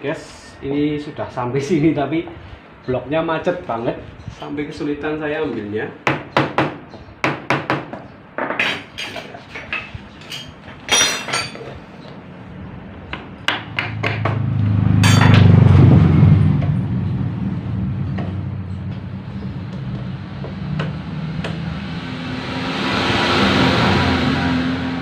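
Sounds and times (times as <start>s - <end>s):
hammer knocking on metal: 13.2s - 15.5s
low engine drone: 13.8s - 25.0s.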